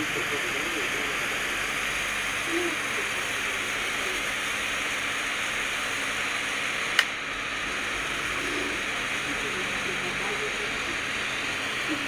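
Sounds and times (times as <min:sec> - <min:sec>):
radio static hiss: 0:00.0 - 0:12.0
sharp click: 0:06.9 - 0:07.2.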